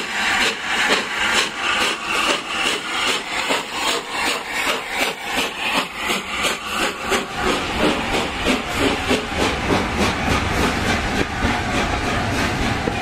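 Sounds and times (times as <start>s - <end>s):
hissing steam: 0.0s - 13.0s
steam locomotive exhaust beat: 0.0s - 13.0s
train wheels rumbling on rails: 0.0s - 13.0s.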